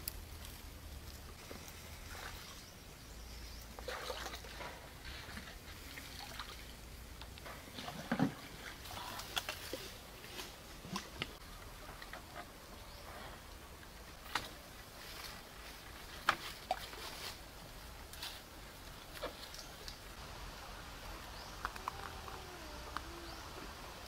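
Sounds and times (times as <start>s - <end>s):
stream water sloshing and trickling: 0.5s - 24.0s
branches rustling and knocking: 7.2s - 20.2s.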